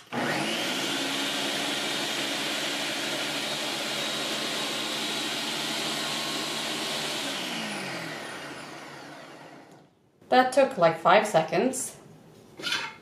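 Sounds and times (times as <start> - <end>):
food processor motor whining: 0.0 - 9.9.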